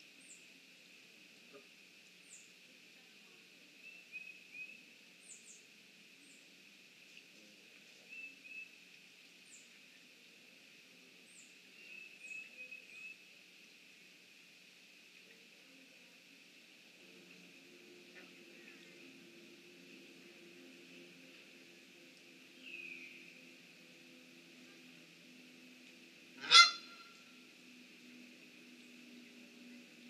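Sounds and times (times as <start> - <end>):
faint high hiss: 0.0 - 30.0
small birds chirping: 22.5 - 23.4.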